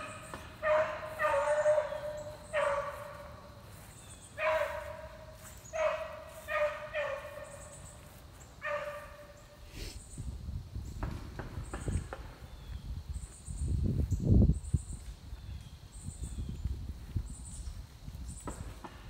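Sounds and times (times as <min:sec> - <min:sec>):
dog baying: 0:00.6 - 0:03.3.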